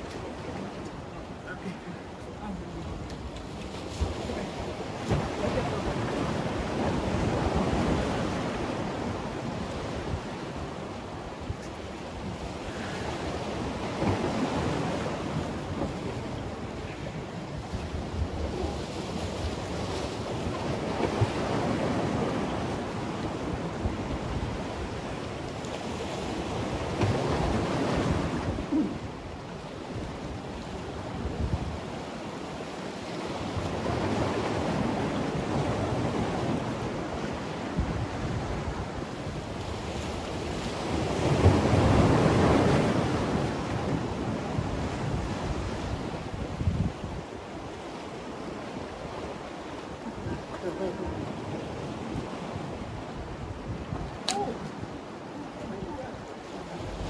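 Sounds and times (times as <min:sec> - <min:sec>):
sea waves washing against concrete: 0:00.0 - 0:57.0.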